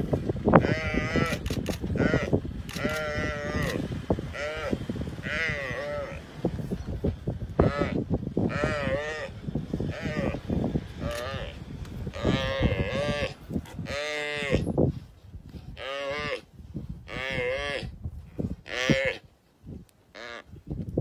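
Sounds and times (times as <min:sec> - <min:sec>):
antelope bleating in distress: 0:00.6 - 0:06.2, 0:07.6 - 0:09.3, 0:09.9 - 0:10.4, 0:11.0 - 0:14.7, 0:15.8 - 0:17.9, 0:18.6 - 0:19.2, 0:20.1 - 0:20.5.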